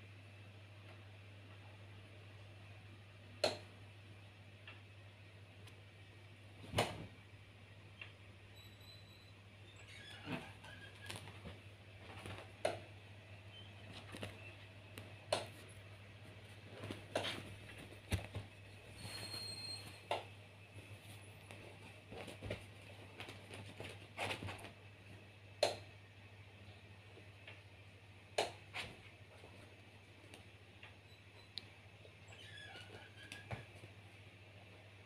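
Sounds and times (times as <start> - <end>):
paws scrabbling on sheets: 15.6 - 20.0, 20.7 - 24.8.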